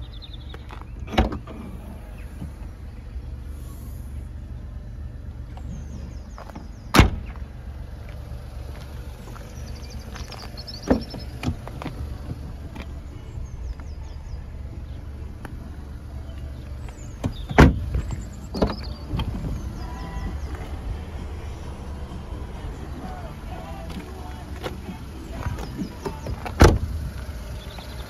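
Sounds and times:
low steady rumble: 0.0s - 28.0s
car doors and tailgate thudding shut: 1.0s - 1.6s, 6.4s - 7.4s, 10.8s - 12.4s, 17.2s - 19.7s, 25.4s - 27.0s.

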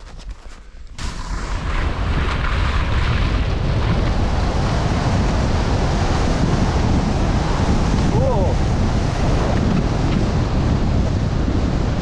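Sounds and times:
skis running over snow: 0.0s - 4.3s
wind rushing over microphone: 0.0s - 12.0s.

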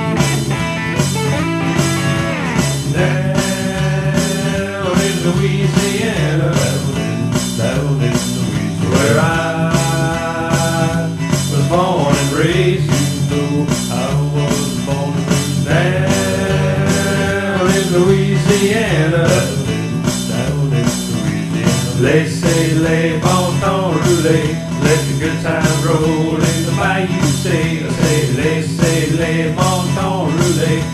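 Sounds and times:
instrumental band music: 0.0s - 30.9s.

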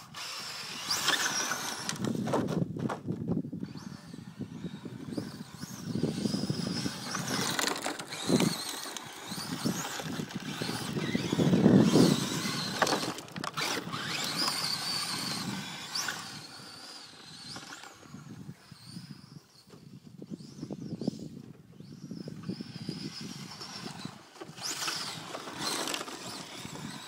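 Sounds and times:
electric motor whining: 0.0s - 2.3s, 3.6s - 27.0s
tyres scrabbling on gravel: 5.6s - 18.1s, 23.4s - 27.0s.

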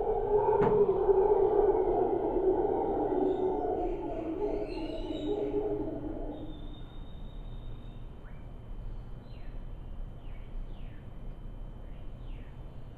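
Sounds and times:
howler monkeys roaring: 0.0s - 7.0s
bird whistles: 3.1s - 8.0s.

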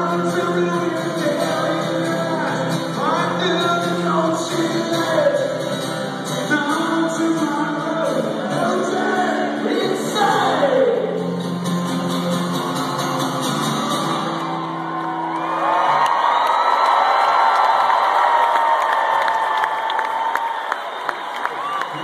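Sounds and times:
man singing: 0.0s - 11.4s
acoustic guitar rock song: 0.0s - 15.3s.

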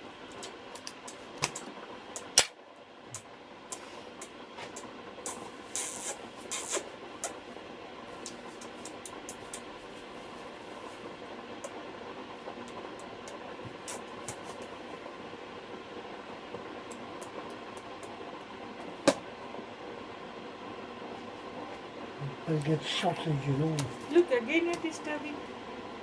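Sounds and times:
parrot hissing sucking sounds: 5.2s - 6.9s.

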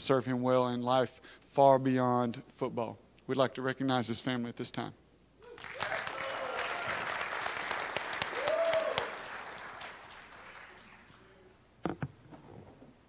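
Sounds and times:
short cheer: 5.4s - 9.7s
audience applauding: 5.4s - 11.4s.

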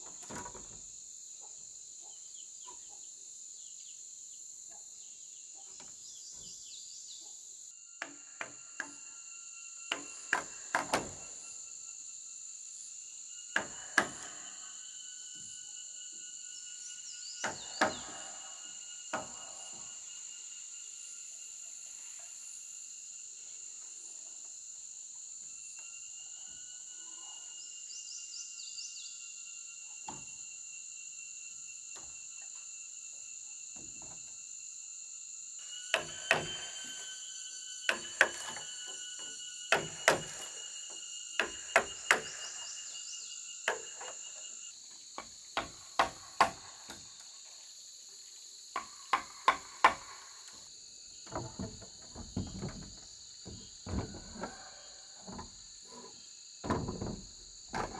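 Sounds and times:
high insect chirring: 0.0s - 57.9s
wood-on-wood knocks: 51.2s - 54.6s, 56.6s - 57.9s.

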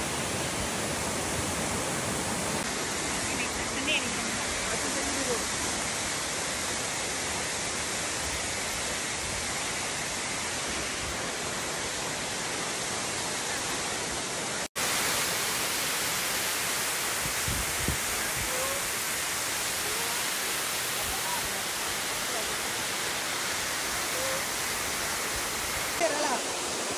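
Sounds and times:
waterfall rushing: 0.0s - 26.9s.

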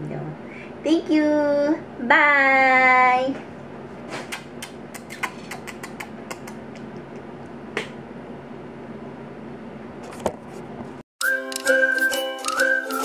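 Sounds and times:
bright jingle with whistle melody: 11.2s - 13.0s.

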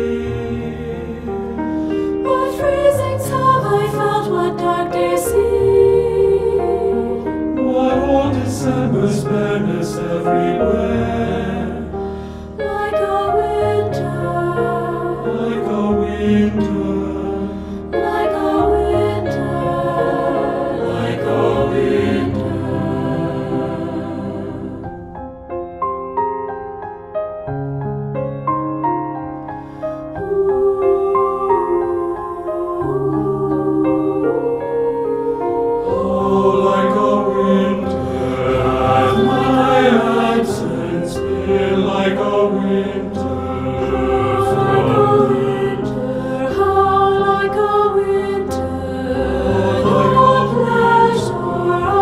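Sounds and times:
choir singing: 0.0s - 25.4s, 29.7s - 52.0s
piano accompaniment: 0.0s - 52.0s.

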